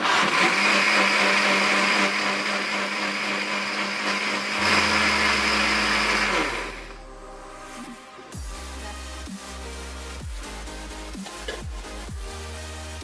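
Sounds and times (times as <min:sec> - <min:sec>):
blender grinding: 0:00.0 - 0:07.0.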